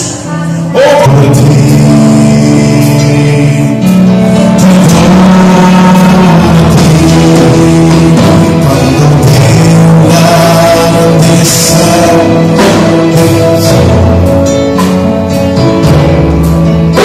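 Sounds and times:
church band worship music: 0:00.0 - 0:17.0
sustained keyboard chords: 0:00.0 - 0:17.0.

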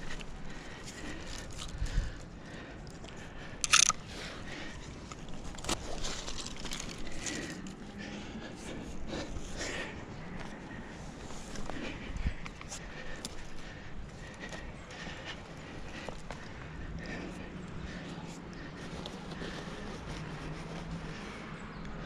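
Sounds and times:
twigs crackling: 0:00.0 - 0:08.2
scraping against tree trunk: 0:05.1 - 0:07.8.

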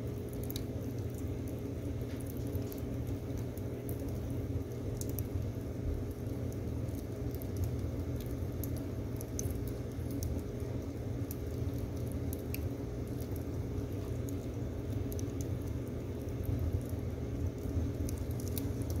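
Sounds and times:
low fire rumble: 0:00.0 - 0:19.0
wood fire crackling and popping: 0:00.0 - 0:19.0.

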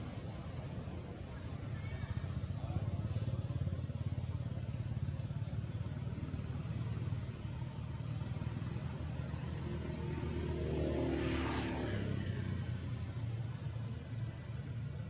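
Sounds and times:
motor passing by: 0:09.4 - 0:13.2.

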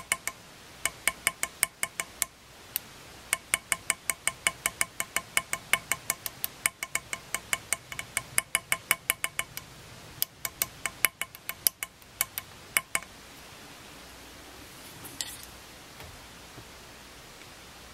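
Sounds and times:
hammer tapping metal punch: 0:00.0 - 0:02.3, 0:03.3 - 0:09.6, 0:10.2 - 0:13.1.

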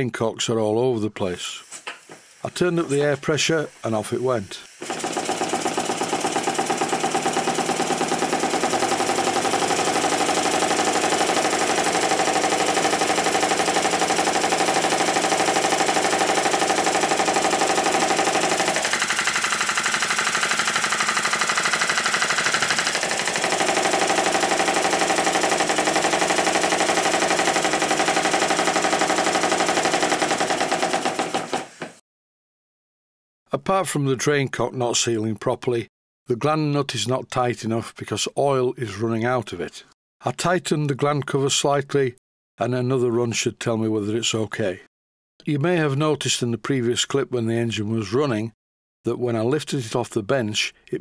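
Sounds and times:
model steam engine running fast: 0:04.8 - 0:31.7.

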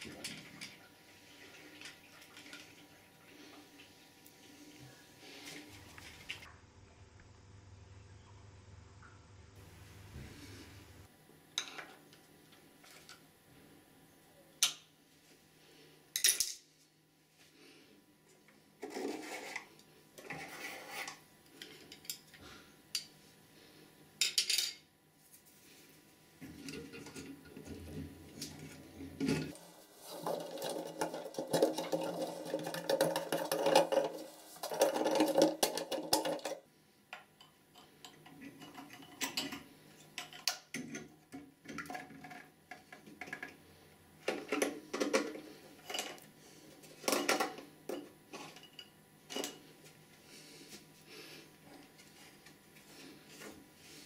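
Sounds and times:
plastic rattling and scraping: 0:26.5 - 0:36.6.

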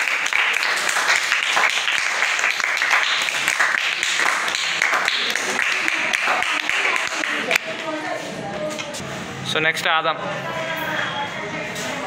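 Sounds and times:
children clapping: 0:00.0 - 0:08.0
children chattering: 0:05.2 - 0:09.3, 0:10.2 - 0:12.0.

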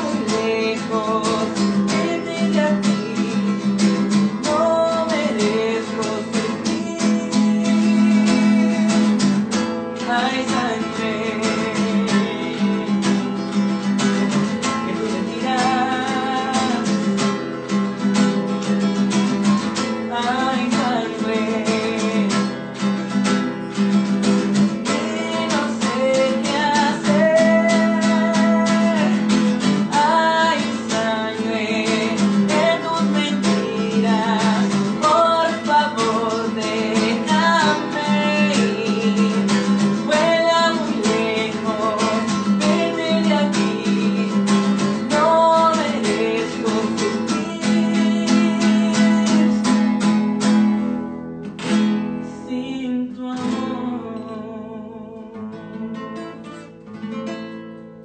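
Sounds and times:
man singing: 0:00.0 - 0:23.1, 0:24.2 - 0:50.6, 0:52.2 - 0:56.5
acoustic guitar strumming: 0:00.0 - 0:58.0
picked guitar notes: 0:00.0 - 0:58.0.

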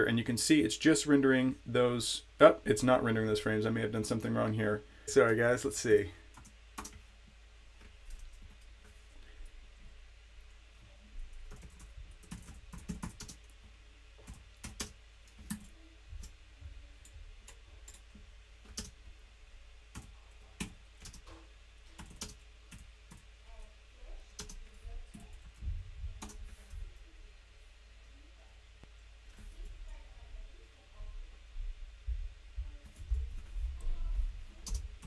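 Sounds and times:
typing on computer keyboard: 0:06.4 - 0:07.0, 0:11.4 - 0:13.5, 0:14.2 - 0:16.3, 0:17.5 - 0:19.0, 0:19.9 - 0:23.2, 0:24.4 - 0:25.6, 0:26.2 - 0:26.4.

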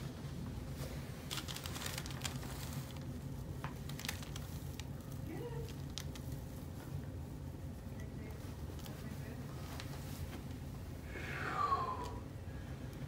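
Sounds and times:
low room hum: 0:00.0 - 0:13.0
paper rustling and crinkling: 0:00.7 - 0:06.8.

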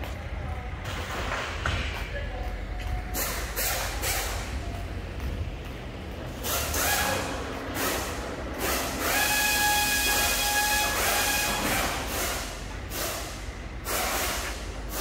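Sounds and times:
machine whine: 0:02.8 - 0:15.0
short bursts of hiss: 0:12.2 - 0:15.0.

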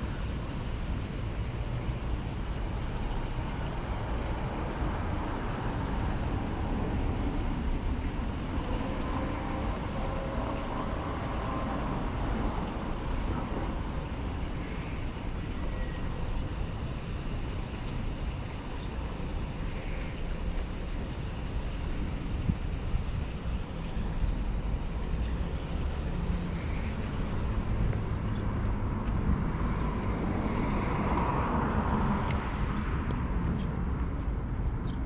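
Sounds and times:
passing vehicle engine hum: 0:00.0 - 0:34.9
passing cars and scooters: 0:00.0 - 0:35.0
wind buffeting microphone: 0:00.0 - 0:35.0.

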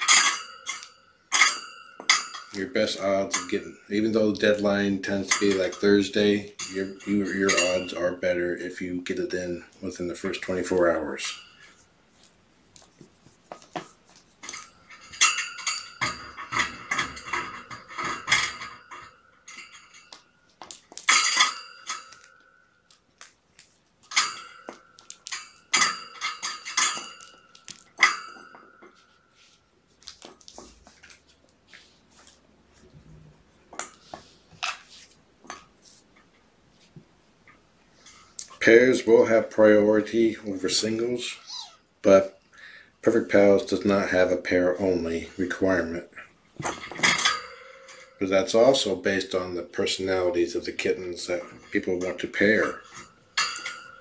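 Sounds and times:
metallic clinking and jingling: 0:00.0 - 0:12.9, 0:13.6 - 0:31.4, 0:45.1 - 0:54.0.

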